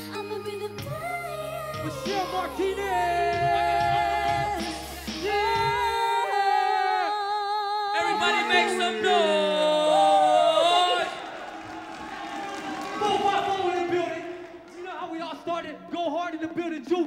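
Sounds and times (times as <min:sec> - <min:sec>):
live music accompaniment: 0:00.0 - 0:06.6
low bass: 0:00.8 - 0:06.0.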